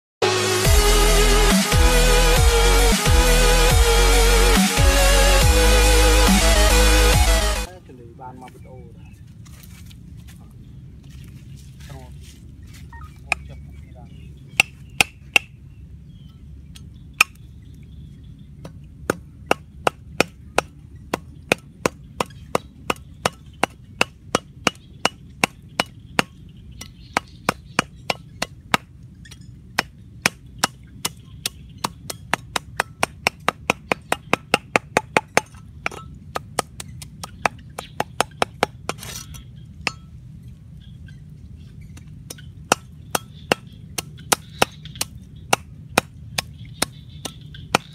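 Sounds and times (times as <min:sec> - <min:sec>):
cleaver chopping on wooden block: 0:14.6 - 0:15.6, 0:17.2 - 0:17.4, 0:18.6 - 0:28.9, 0:29.8 - 0:40.0, 0:42.0 - 0:47.9.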